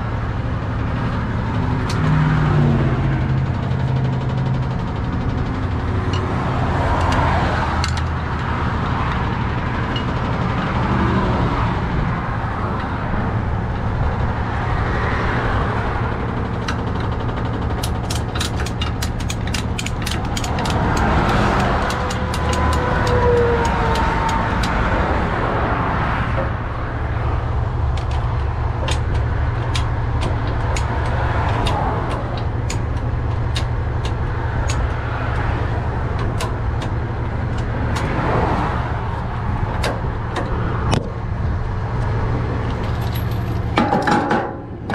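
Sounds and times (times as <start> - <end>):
truck engine idling: 0.0 - 44.9
ratchet strap clicking: 6.1 - 8.5, 16.5 - 25.1, 27.8 - 41.1.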